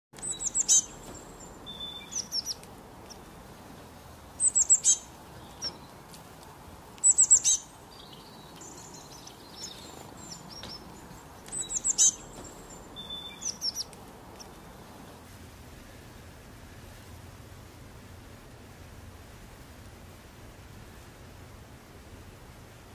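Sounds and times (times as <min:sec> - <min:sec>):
songbirds singing: 0:00.2 - 0:15.3
faint steady hiss: 0:00.2 - 0:22.9.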